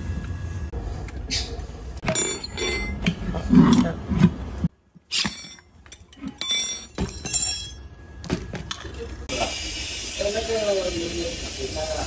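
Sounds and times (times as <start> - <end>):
tyre levers clinking on rim: 1.3 - 3.9, 5.0 - 9.0.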